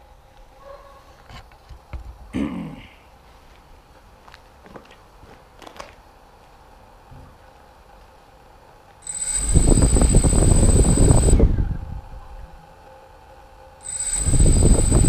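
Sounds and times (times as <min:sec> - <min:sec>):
small motor whining and rumbling: 0:09.0 - 0:11.4, 0:13.8 - 0:15.0.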